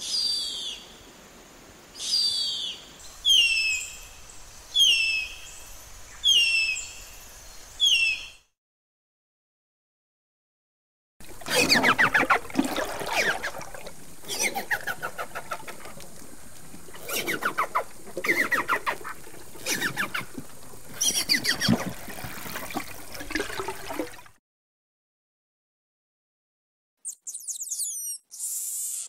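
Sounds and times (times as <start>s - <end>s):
faint hiss: 0.0s - 8.4s.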